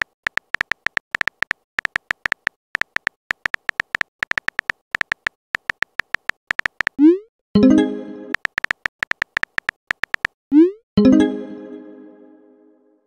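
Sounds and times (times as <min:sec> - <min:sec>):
synthetic keyboard key clicks: 0:00.0 - 0:07.1, 0:08.4 - 0:10.4.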